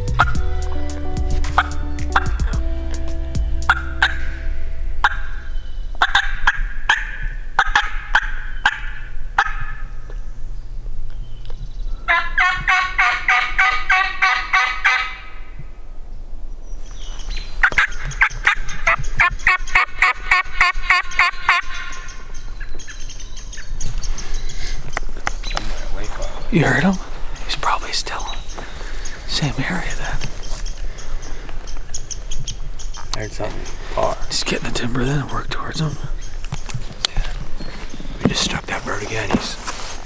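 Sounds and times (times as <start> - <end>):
turkey yelping: 3.7 - 4.4, 5.0 - 9.9, 12.1 - 15.4, 17.6 - 23.7
turkey gobbling: 3.7 - 9.9, 12.1 - 15.4, 17.6 - 23.7.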